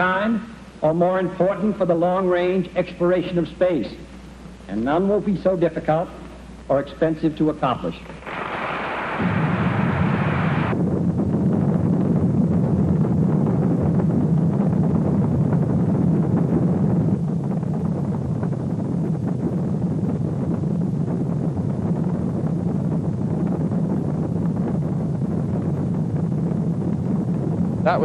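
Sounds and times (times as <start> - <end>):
low rumbling roar: 8.2 - 28.0.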